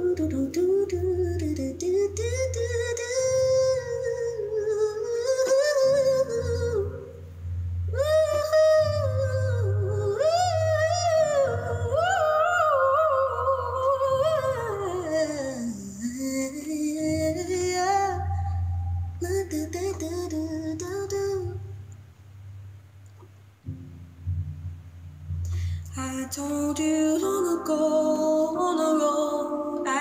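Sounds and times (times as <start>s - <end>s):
bass line from backing track: 0.0s - 30.0s.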